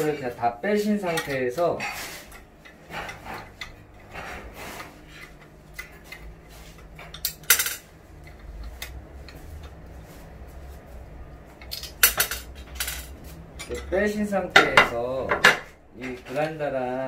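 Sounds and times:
metal parts clinking: 7.1s - 8.4s, 11.6s - 13.9s.

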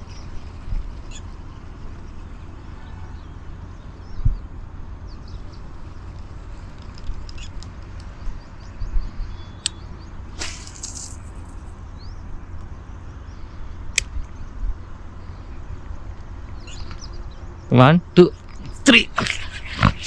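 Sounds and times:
faint bird chirps: 0.0s - 4.5s, 6.8s - 15.8s, 16.4s - 20.0s
wind rumble on microphone: 0.0s - 17.7s
brief hiss: 10.4s - 11.2s
sharp clicks: 13.9s - 14.3s.

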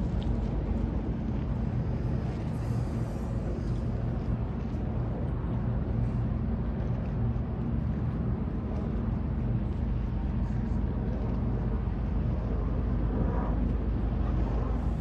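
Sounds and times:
city noise hum: 0.0s - 15.0s
ship engine drone: 0.0s - 15.0s.

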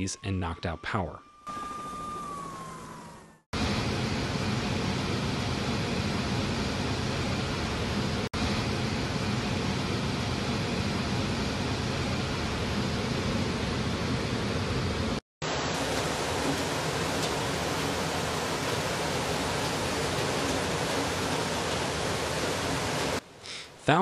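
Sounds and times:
floodwater torrent rushing: 15.5s - 23.2s.

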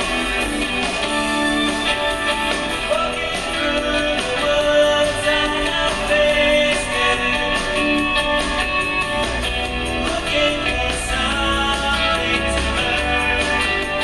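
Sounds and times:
song with guitar and singing: 0.0s - 14.0s.

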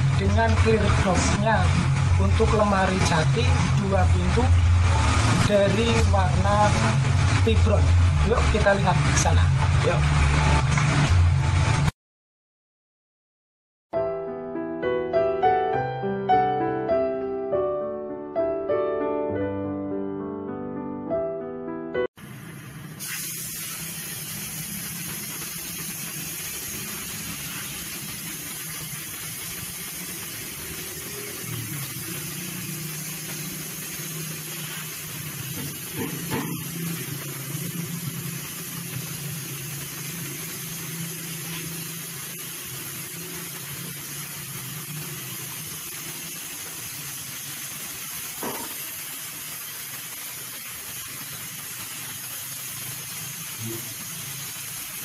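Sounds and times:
air compressor humming: 22.2s - 47.0s
spray gun hissing: 22.9s - 55.0s.

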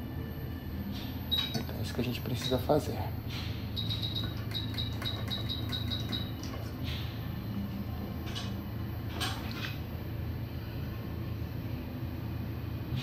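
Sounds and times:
steady low hum: 0.0s - 13.0s
short high electronic beeps: 3.8s - 6.4s.

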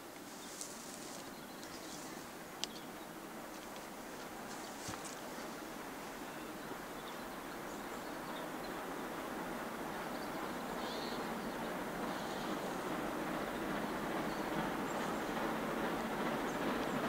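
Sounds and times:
steam locomotive rumble: 0.0s - 17.0s
faint bird calls: 10.2s - 12.9s.

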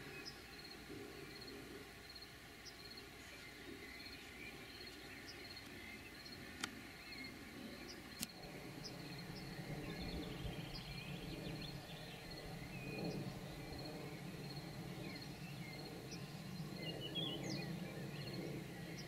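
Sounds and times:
sharp clicks: 6.6s - 6.8s, 8.2s - 8.4s
pulsed insect trill: 8.1s - 17.6s.

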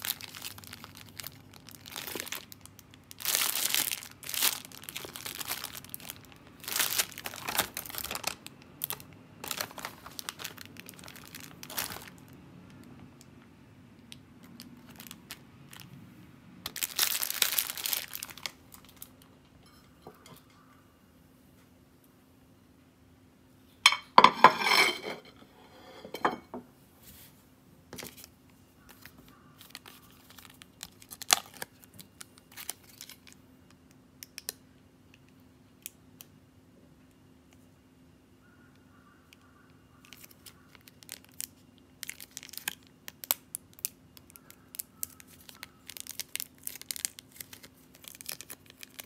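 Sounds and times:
plastic packaging crinkling: 0.0s - 13.0s, 14.4s - 16.0s, 16.6s - 20.2s, 28.0s - 33.8s, 40.0s - 49.0s
faint steady hum: 0.0s - 49.0s.

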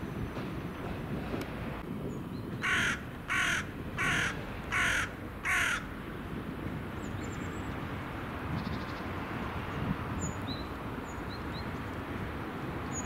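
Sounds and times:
crow cawing: 2.6s - 5.9s.

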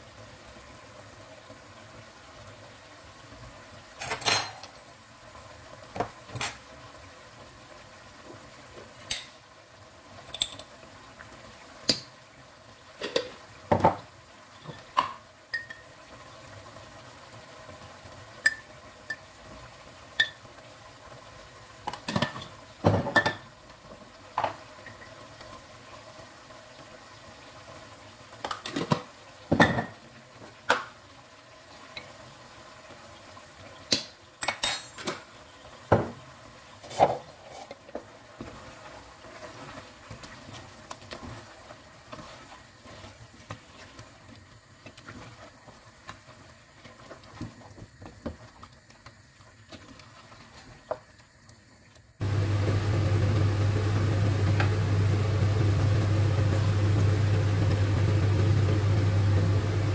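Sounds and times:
faint sizzle from pot: 0.0s - 59.9s
spoon clinking against pot: 15.5s - 15.8s.

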